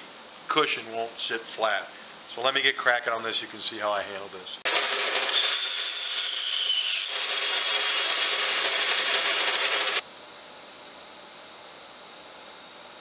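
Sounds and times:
bandsaw cutting wood: 4.7 - 10.0.

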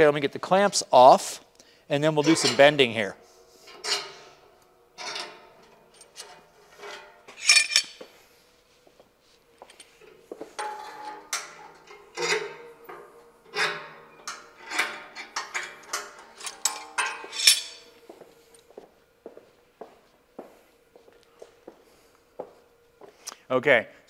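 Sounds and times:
faint steady hum: 0.0 - 24.0
metal clamps clanking and clicking: 3.7 - 4.2, 5.0 - 8.0, 10.6 - 17.9.

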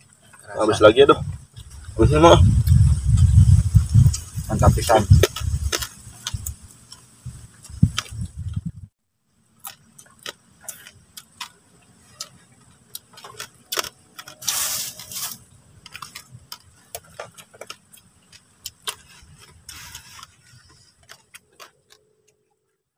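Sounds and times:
wet chewing and lip-smacking: 2.5 - 4.4, 5.1 - 8.7, 9.6 - 22.4
short hissing noise: 14.4 - 15.5.

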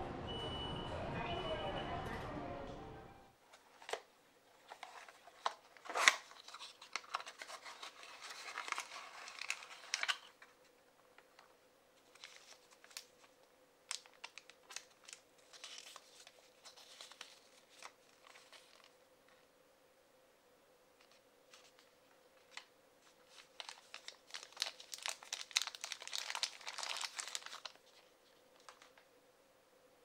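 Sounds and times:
plastic crinkling and rustling: 3.5 - 19.0, 21.0 - 29.1
paper leaflet rustling: 3.5 - 19.4, 21.0 - 29.0.

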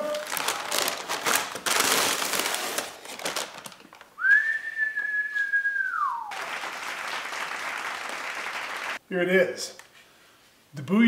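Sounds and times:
paper bag crinkling: 0.0 - 4.1
long whistled note: 4.2 - 6.3.

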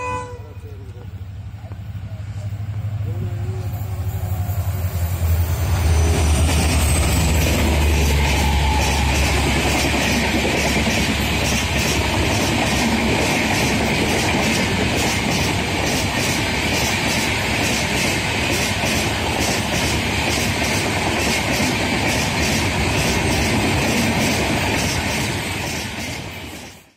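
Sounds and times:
train wheels rushing on rails: 0.0 - 26.9
clickety-clack of rail joints: 6.0 - 26.9.

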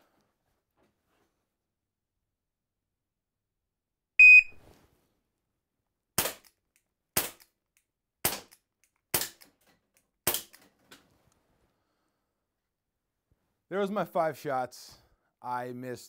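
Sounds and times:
shot timer beep: 4.2 - 4.6
air pistol shots: 6.2 - 6.6, 7.2 - 7.5, 8.2 - 9.5, 10.2 - 10.6.

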